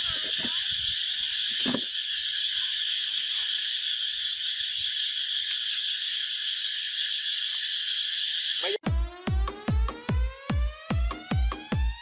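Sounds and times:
insects shrilling: 0.0 - 8.8.

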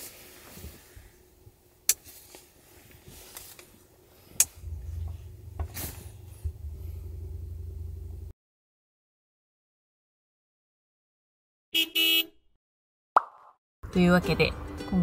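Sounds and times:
steady low hum: 0.0 - 8.3.

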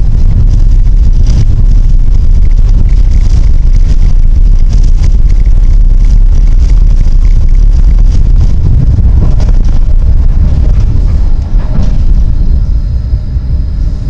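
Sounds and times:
tram rumbling along track: 8.0 - 14.0.

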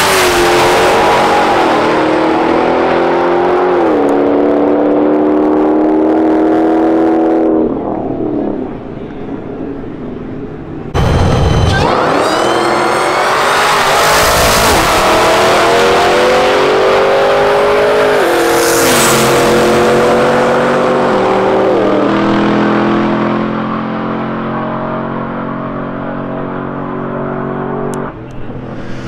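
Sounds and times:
truck engine at full throttle: 10.9 - 29.0.

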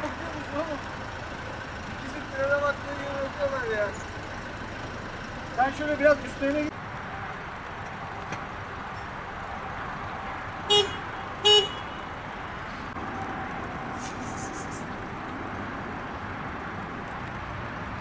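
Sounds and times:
motorway traffic noise: 0.0 - 18.0
car horn toots: 10.7 - 12.1.

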